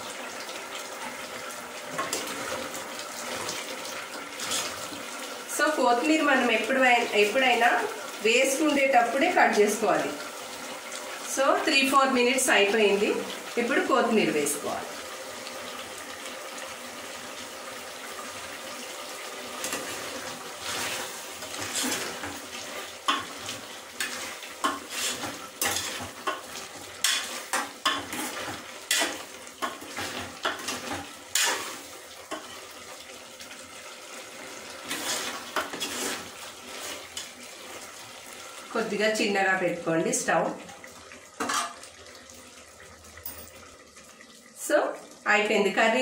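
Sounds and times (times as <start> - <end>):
curry sizzling: 0.0 - 46.0
metal spoon scraping and clinking pot: 34.9 - 36.2.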